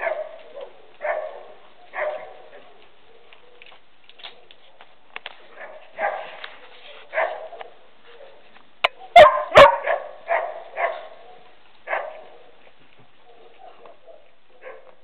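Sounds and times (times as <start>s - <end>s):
dog barking: 0.0s - 3.4s, 5.5s - 6.4s, 7.0s - 12.6s, 13.2s - 15.0s.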